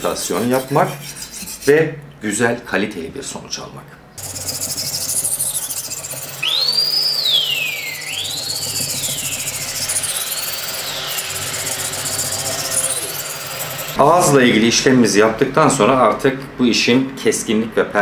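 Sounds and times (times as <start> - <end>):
knife scraping on whetstone: 0.0 - 1.8, 4.2 - 6.5
blade squealing: 4.2 - 14.0.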